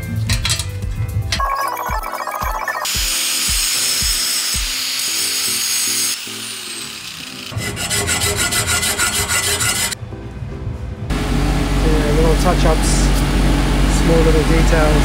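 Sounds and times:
background music with light beat: 0:00.0 - 0:04.8
angle grinder grinding steel: 0:02.9 - 0:10.0
hand file rasping on metal: 0:03.4 - 0:10.0.

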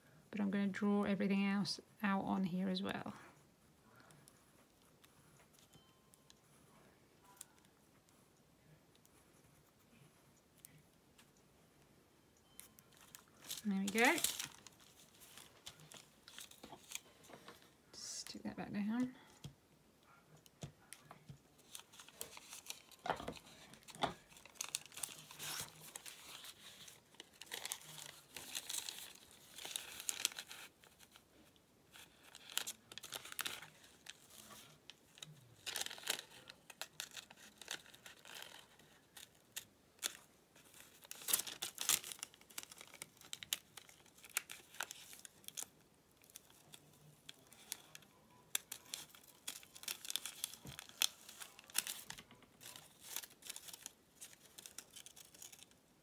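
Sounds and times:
paper and fabric rustling: 0:12.9 - 0:17.8, 0:21.0 - 0:55.8.

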